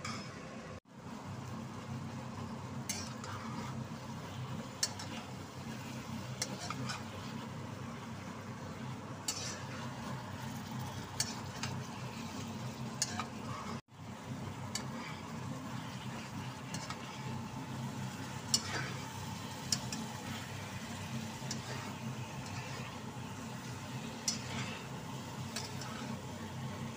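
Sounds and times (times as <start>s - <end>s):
food sizzling in a wok: 0.9s - 26.9s
metal spatula scraping: 2.9s - 3.8s, 4.8s - 7.5s, 9.2s - 13.8s, 14.7s - 26.3s.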